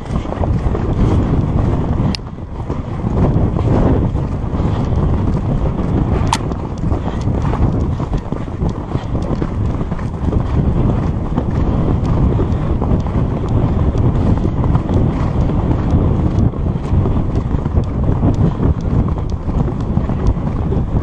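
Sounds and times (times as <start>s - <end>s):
hooves drumming on dirt: 0.0s - 21.0s
wind buffeting microphone: 0.0s - 21.0s.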